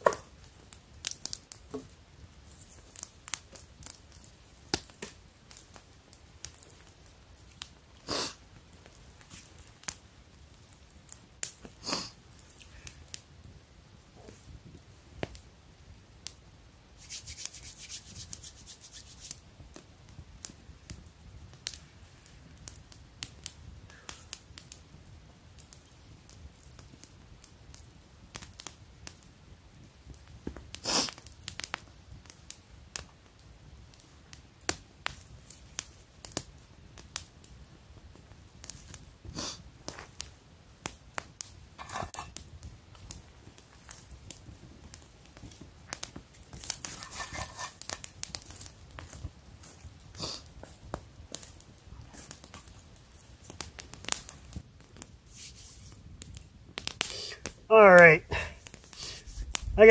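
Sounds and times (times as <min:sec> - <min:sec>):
campfire crackling and popping: 0:00.0 - 0:59.9
rustling: 0:17.0 - 0:19.5, 0:43.3 - 0:57.1.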